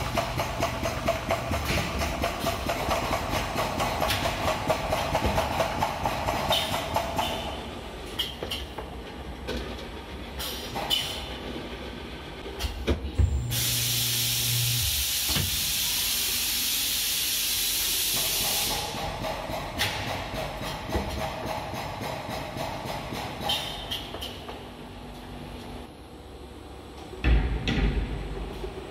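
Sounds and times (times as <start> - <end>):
filling nozzles hissing: 13.5 - 18.8.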